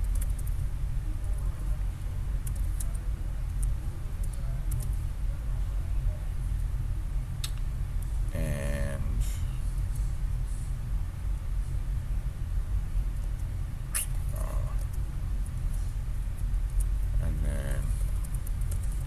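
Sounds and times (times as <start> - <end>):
computer keyboard keys clicking: 0.0 - 0.6, 2.4 - 3.0
steady low rumble: 0.0 - 19.0.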